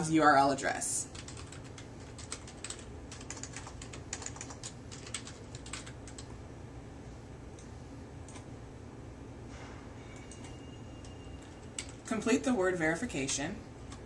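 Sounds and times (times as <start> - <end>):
keyboard typing clicks: 1.2 - 6.3, 10.2 - 12.1.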